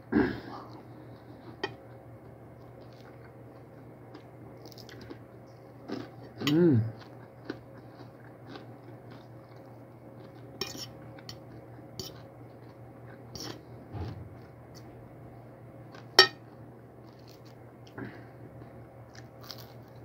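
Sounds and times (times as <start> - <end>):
low steady hum: 0.0 - 20.0
fork clinking on a plate: 16.2 - 16.4.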